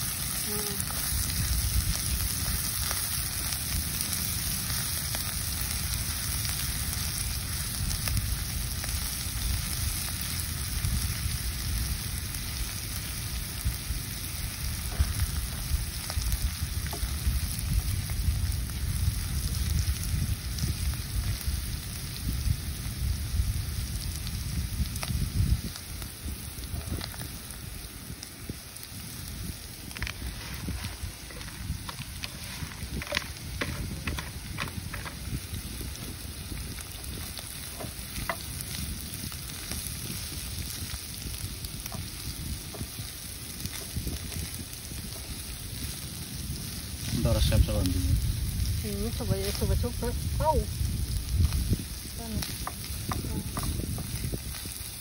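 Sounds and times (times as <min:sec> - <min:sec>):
food sizzling in oil: 0:00.0 - 0:55.0
low rumble: 0:00.0 - 0:55.0
spatula stirring in pan: 0:29.9 - 0:35.2.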